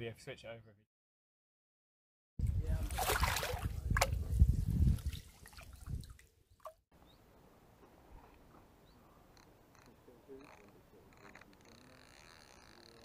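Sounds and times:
fish thrashing and splashing water: 0:02.9 - 0:04.1.

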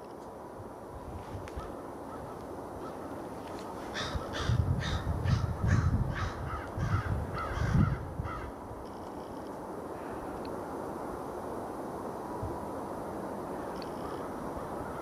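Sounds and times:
crow-like bird calling: 0:01.6 - 0:08.6, 0:13.5 - 0:15.0.

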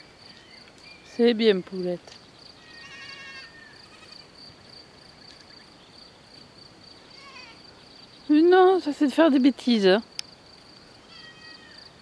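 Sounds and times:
crickets chirring: 0:00.0 - 0:12.0
goats bleating: 0:02.6 - 0:04.3.

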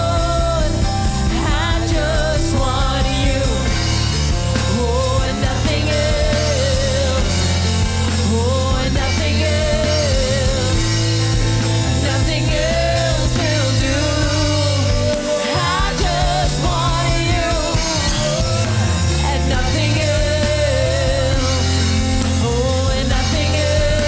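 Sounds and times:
woman singing with vibrato: 0:00.0 - 0:11.2, 0:11.9 - 0:24.0
backing singers: 0:00.0 - 0:24.0
band with keyboard bass and drums: 0:00.0 - 0:24.0.

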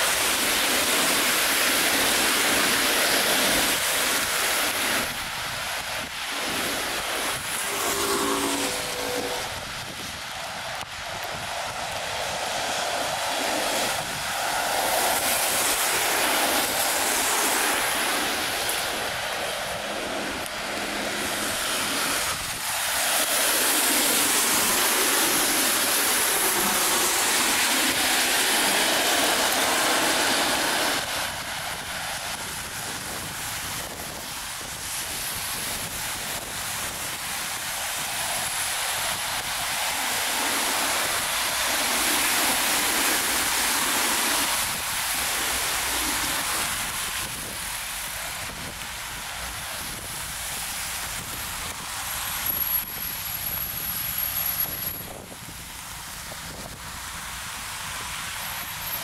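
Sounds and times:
tyres hissing on wet road: 0:00.0 - 0:59.0.

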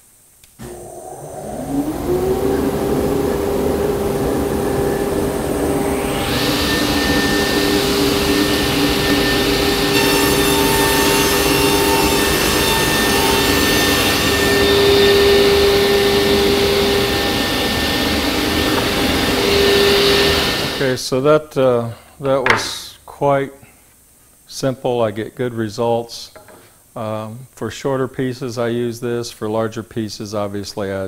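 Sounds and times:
table saw humming: 0:00.6 - 0:20.9.

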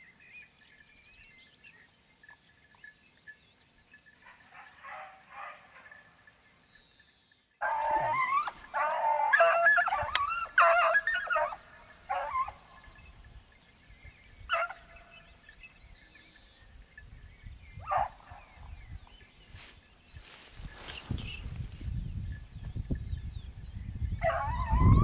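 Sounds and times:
hounds baying: 0:04.1 - 0:06.4, 0:07.6 - 0:13.3, 0:14.3 - 0:15.8, 0:17.8 - 0:18.8, 0:24.2 - 0:25.0
dogs barking and howling: 0:04.2 - 0:06.2, 0:07.6 - 0:13.0, 0:14.5 - 0:15.2, 0:17.8 - 0:18.7, 0:24.2 - 0:25.0.

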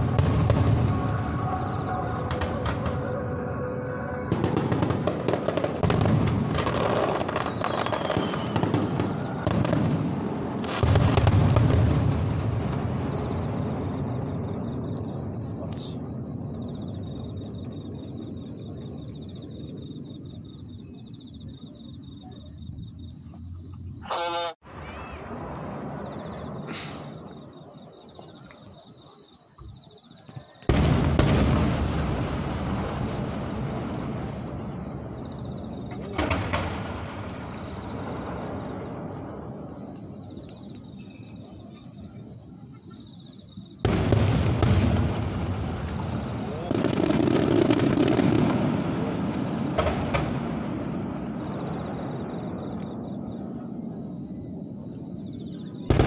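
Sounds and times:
crickets chirping: 0:00.0 - 0:56.0
firework cracks: 0:04.3 - 0:14.1, 0:30.6 - 0:34.7, 0:36.0 - 0:37.7, 0:43.8 - 0:51.4.

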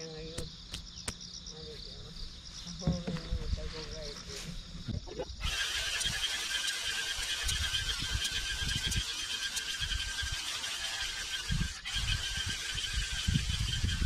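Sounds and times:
wind gusting on microphone: 0:07.3 - 0:09.2, 0:11.4 - 0:14.0.

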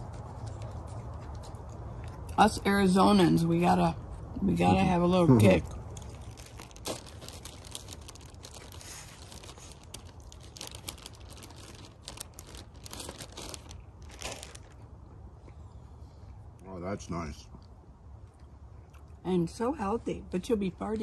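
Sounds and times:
plastic bag crinkling: 0:05.4 - 0:15.0.

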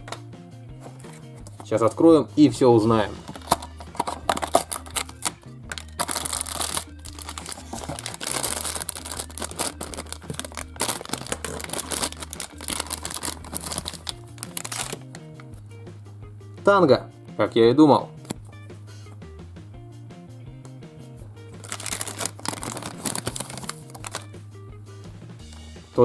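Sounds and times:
background music: 0:00.0 - 0:26.0
packaging tearing and crinkling: 0:03.3 - 0:15.0, 0:21.6 - 0:24.3.

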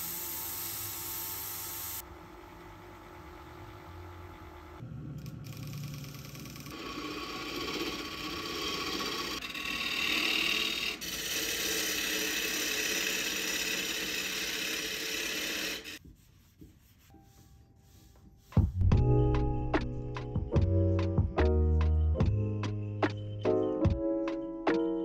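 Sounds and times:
lathe tool scraping wood: 0:05.9 - 0:16.0
music: 0:17.1 - 0:25.0.

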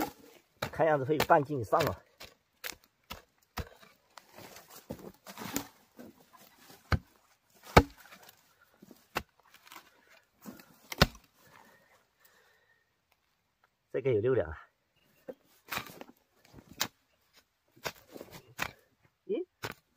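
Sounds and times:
hoe chopping into soil: 0:00.0 - 0:08.4, 0:10.4 - 0:11.3, 0:15.7 - 0:16.1, 0:17.8 - 0:18.9, 0:19.6 - 0:19.9
soil scraping and crumbling: 0:00.0 - 0:12.0, 0:15.2 - 0:18.9.

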